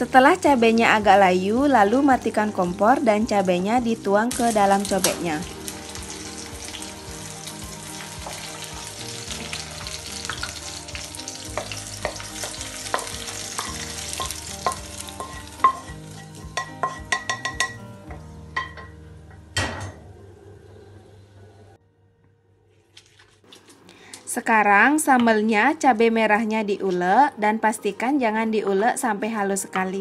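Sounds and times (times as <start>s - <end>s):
food sizzling in a wok: 0.0s - 17.8s
spatula clicking and tapping: 11.5s - 17.8s.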